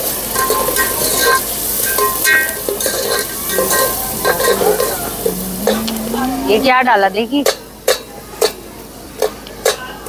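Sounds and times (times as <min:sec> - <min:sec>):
food sizzling: 0:00.0 - 0:09.6
metal spoon scraping frying pan: 0:00.4 - 0:07.6.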